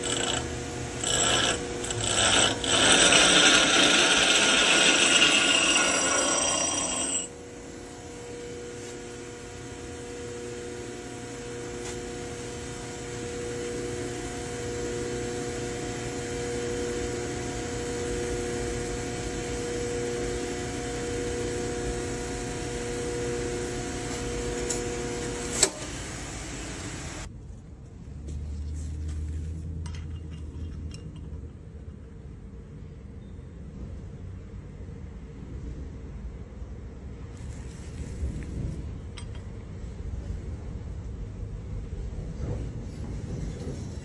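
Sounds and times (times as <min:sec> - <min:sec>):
drill bit grinding on grinder wheel: 0:00.0 - 0:07.4
bench grinder spinning hum: 0:00.0 - 0:27.3.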